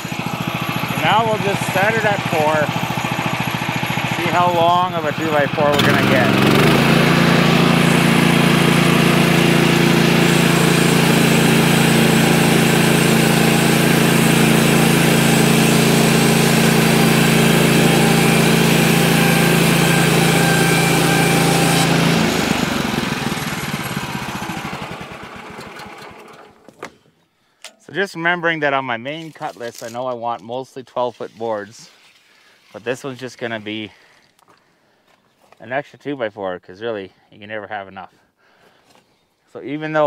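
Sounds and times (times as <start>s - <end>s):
saw blade cutting log: 0.0s - 26.3s
gas engine running: 0.0s - 26.7s.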